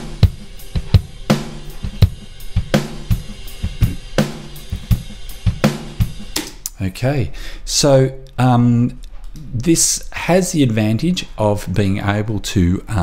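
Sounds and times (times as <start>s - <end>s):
rock drum kit beat: 0.0s - 6.6s.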